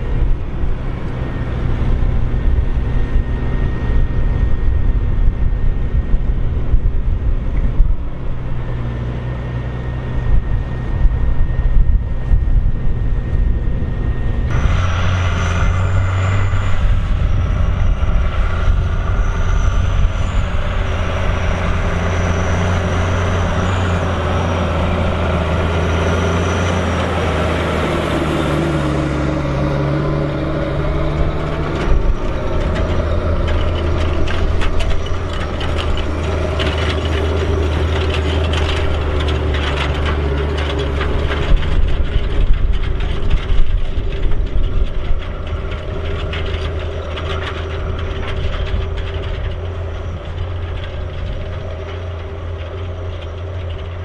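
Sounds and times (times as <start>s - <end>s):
diesel engine running: 0.0s - 54.0s
thin high whine: 10.6s - 27.4s.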